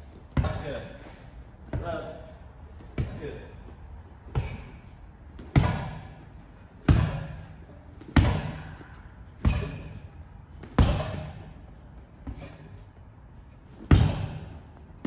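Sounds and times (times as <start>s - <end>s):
fists punching heavy bag: 5.4s - 6.2s, 6.8s - 8.8s, 9.4s - 11.6s, 13.8s - 14.6s.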